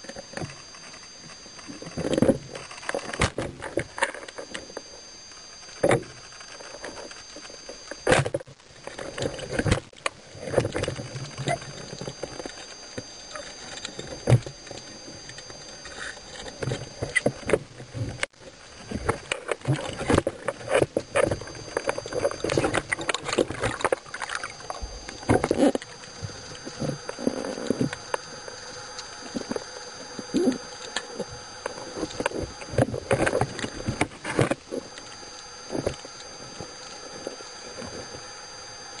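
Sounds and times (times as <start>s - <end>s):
underwater knocks and scraping: 5.8s - 38.3s.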